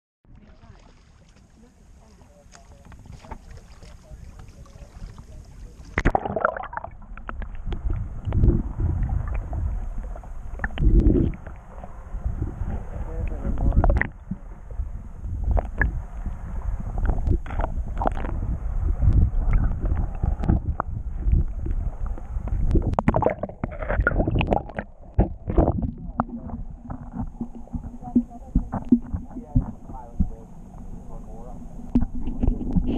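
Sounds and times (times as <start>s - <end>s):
knocks and splashes: 0.3s - 11.9s, 22.5s - 30.4s
underwater sloshing rumble: 0.3s - 32.9s
camera splashing into water: 5.9s - 7.0s.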